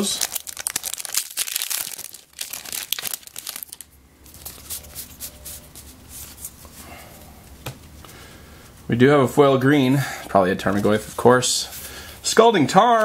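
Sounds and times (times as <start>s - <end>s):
foil wrapper crinkling and tearing: 0.0s - 5.1s
cards rustling: 0.0s - 6.7s.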